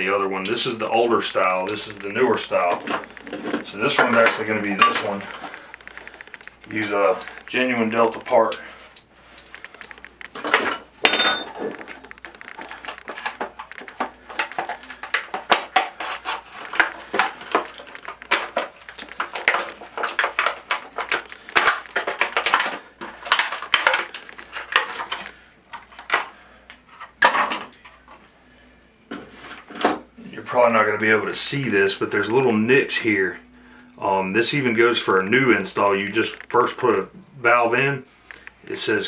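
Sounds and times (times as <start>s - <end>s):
clicks clinks and rattles of parts: 2.7s - 7.5s, 9.4s - 27.8s.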